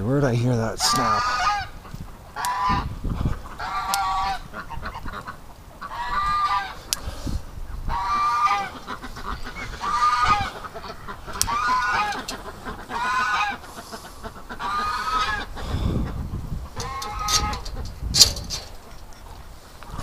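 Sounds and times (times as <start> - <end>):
goose honking: 0.8 - 7.1, 7.9 - 17.9
sharp clicks: 6.9 - 7.1.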